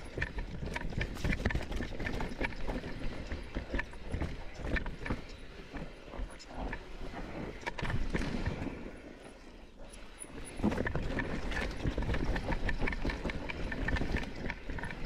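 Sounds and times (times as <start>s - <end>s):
mountain bike clattering on trail: 0.0s - 5.9s, 10.6s - 15.0s.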